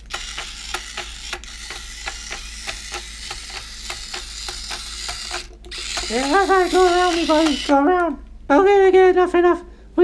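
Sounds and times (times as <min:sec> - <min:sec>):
robotic toy clicking and whirring: 0:00.0 - 0:07.8.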